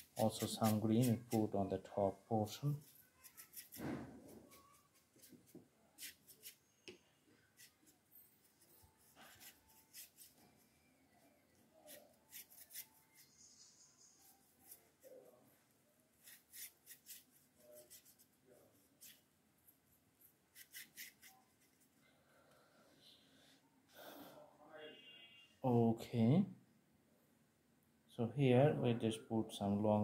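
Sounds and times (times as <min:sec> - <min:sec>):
paintbrush scratching on bamboo slats: 0:00.0 - 0:01.6, 0:07.5 - 0:10.4, 0:11.8 - 0:15.3, 0:16.2 - 0:19.2, 0:20.5 - 0:21.9.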